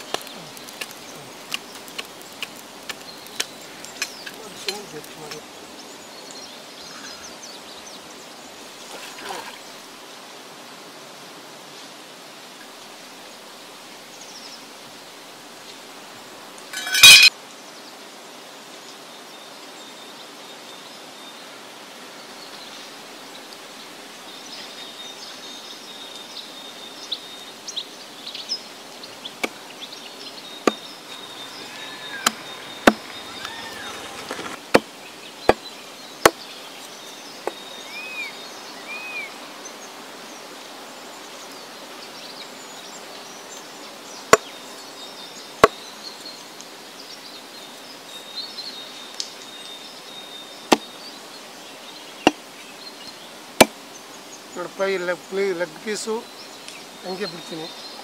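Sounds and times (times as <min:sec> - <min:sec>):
birds chirping: 0:00.0 - 0:10.0, 0:16.7 - 0:17.3, 0:20.0 - 0:58.0
insects buzzing: 0:22.9 - 0:58.0
knife chopping on wooden block: 0:32.8 - 0:33.1.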